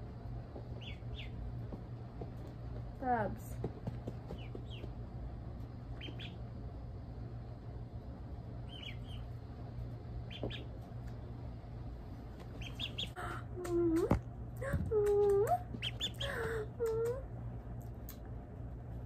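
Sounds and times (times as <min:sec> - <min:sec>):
low hum: 0:00.0 - 0:19.0
ducklings peeping: 0:00.7 - 0:01.5, 0:04.3 - 0:05.0, 0:05.9 - 0:06.6, 0:08.6 - 0:09.4, 0:10.2 - 0:11.2, 0:12.4 - 0:13.8, 0:15.0 - 0:17.0.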